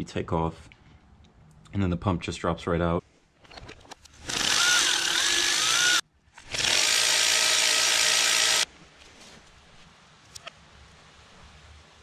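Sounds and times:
handheld power tool whining: 0:04.2 - 0:08.7.

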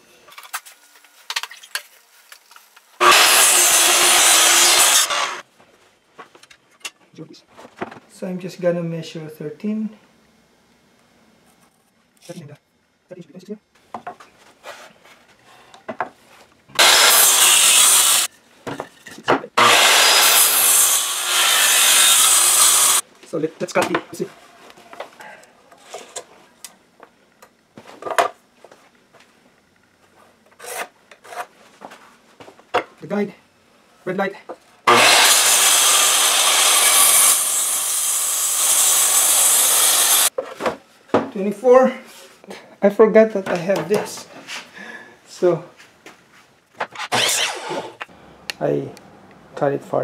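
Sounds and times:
circular saw cutting wood: 0:03.0 - 0:05.4, 0:16.8 - 0:18.3, 0:19.6 - 0:23.0, 0:34.9 - 0:40.3, 0:47.0 - 0:48.1.

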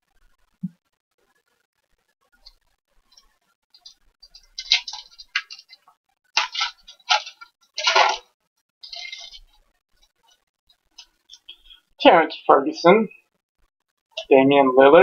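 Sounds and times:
foil wrapper crinkling and tearing: 0:04.3 - 0:05.8, 0:06.4 - 0:09.6.

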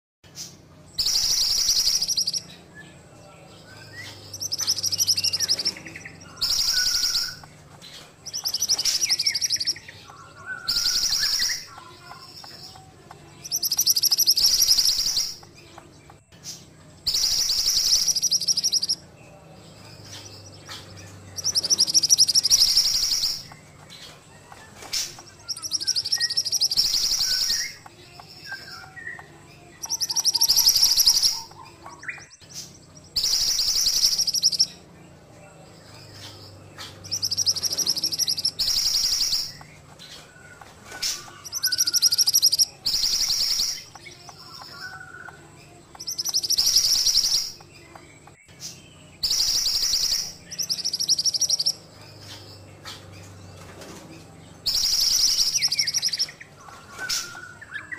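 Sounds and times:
bird singing trilled phrase: 0:00.9 - 0:07.5, 0:08.2 - 0:15.9, 0:17.0 - 0:53.4, 0:54.6 - 0:57.9.

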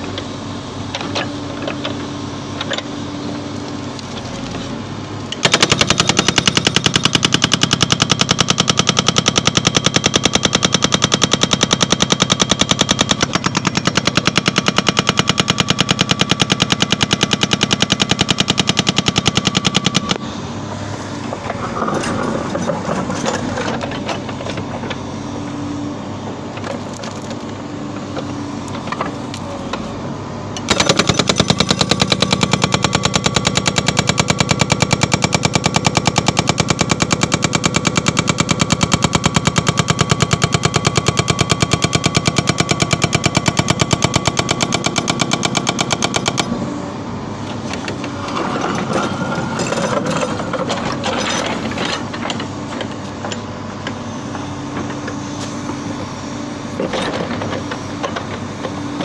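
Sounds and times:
excavator engine running: 0:00.0 - 0:59.0
hydraulic breaker hammering: 0:30.6 - 0:46.6.

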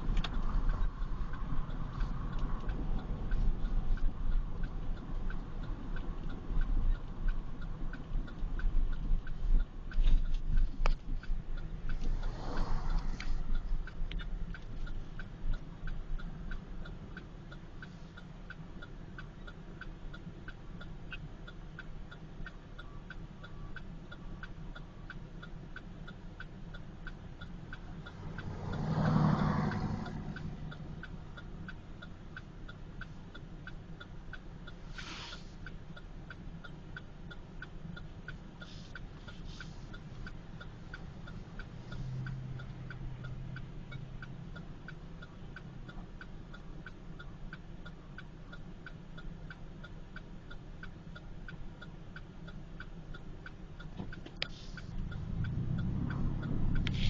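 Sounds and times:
car engine and road rumble: 0:00.0 - 0:57.0
light regular ticking: 0:00.0 - 0:57.0
brief hiss: 0:34.9 - 0:35.6.

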